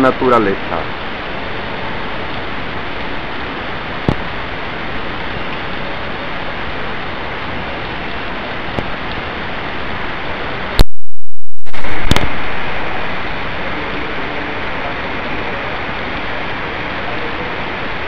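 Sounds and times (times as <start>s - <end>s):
heavy rain falling: 0.0s - 10.9s, 11.6s - 18.0s
loud thunder crack: 11.6s - 14.8s.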